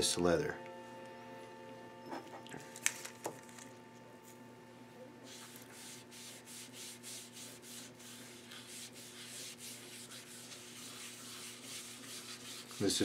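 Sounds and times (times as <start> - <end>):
hand wiping water over leather: 5.3 - 13.0.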